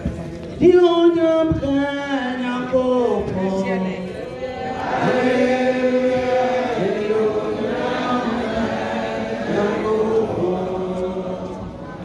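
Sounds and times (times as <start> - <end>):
group singing a worship song: 4.4 - 11.8.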